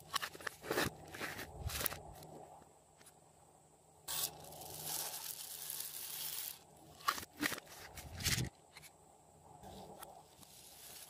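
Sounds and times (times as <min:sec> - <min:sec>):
foam beads pouring rustling hiss: 0:04.1 - 0:07.0, 0:10.4 - 0:11.0.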